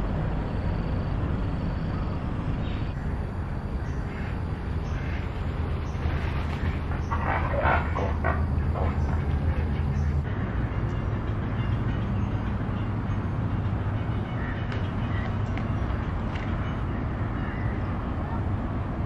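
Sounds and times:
waterfowl calls: 0:03.8 - 0:10.2.

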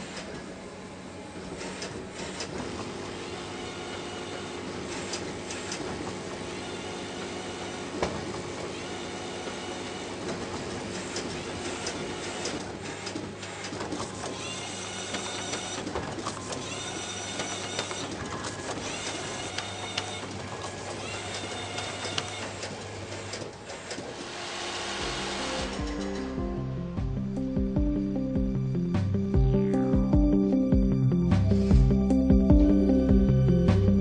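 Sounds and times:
machinery humming: 0:00.0 - 0:34.0
machine clicks: 0:10.3 - 0:24.2
short rising motor whines: 0:24.2 - 0:27.0.

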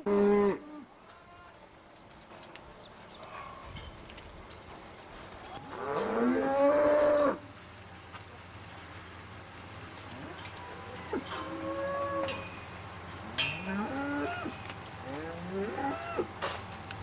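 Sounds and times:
cow mooing: 0:00.0 - 0:00.9, 0:05.7 - 0:07.4, 0:11.0 - 0:12.4, 0:13.3 - 0:16.3.

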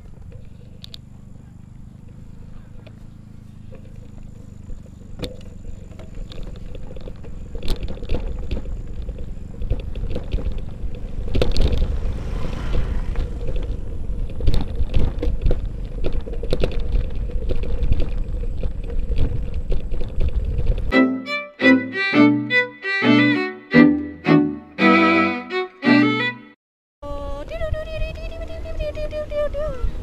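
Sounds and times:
bicycle rattling and clicking: 0:00.0 - 0:20.9
tyre rumble and wind: 0:02.1 - 0:20.9.

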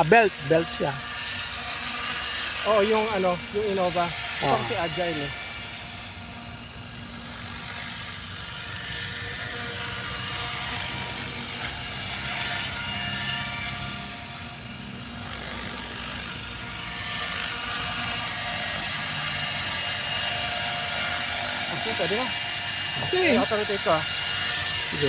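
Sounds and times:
electric motor whine: 0:00.0 - 0:25.0
rotor blades whirring: 0:00.0 - 0:25.0.

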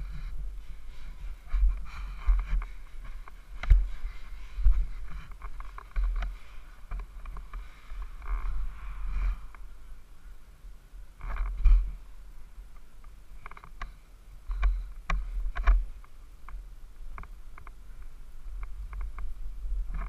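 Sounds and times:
muffled motorbike engine rumbling: 0:00.0 - 0:10.3.

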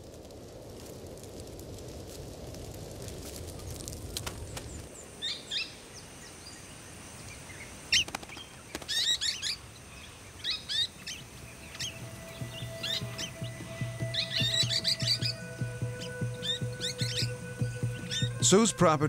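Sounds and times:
fire crackling: 0:00.0 - 0:19.0
birds chirping: 0:04.4 - 0:19.0.

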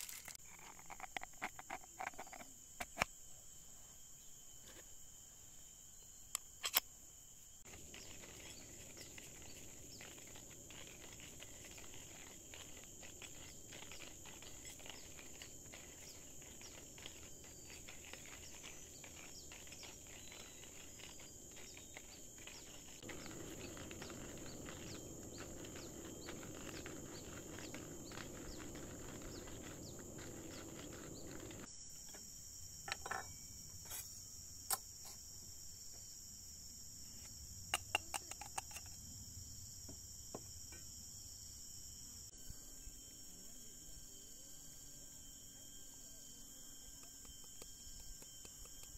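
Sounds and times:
insects trilling: 0:00.0 - 0:48.9
bird calls: 0:13.4 - 0:31.7.

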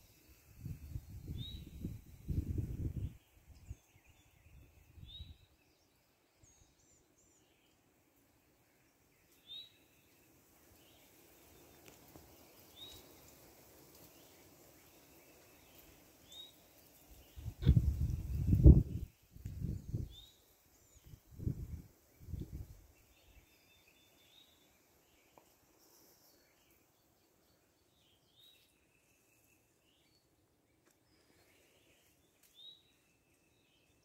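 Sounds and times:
songbird chirping: 0:00.0 - 0:34.0
low rumbling microphone noise: 0:17.4 - 0:20.1.

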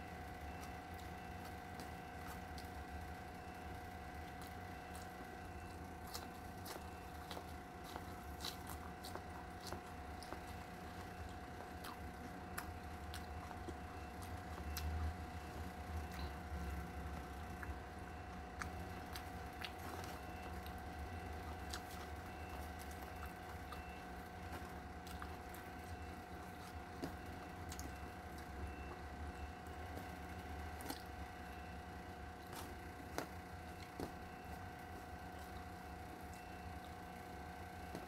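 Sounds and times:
steady hum: 0:00.0 - 0:38.0
chewing: 0:00.2 - 0:38.0.

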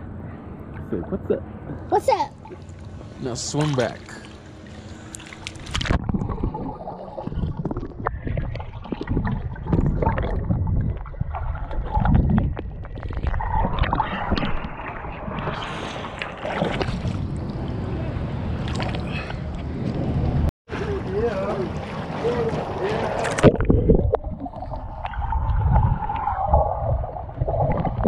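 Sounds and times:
water splashing: 0:02.4 - 0:19.9, 0:20.7 - 0:28.0
underwater rumbling and gurgling: 0:04.5 - 0:28.0
small underwater clicks: 0:05.1 - 0:06.3.

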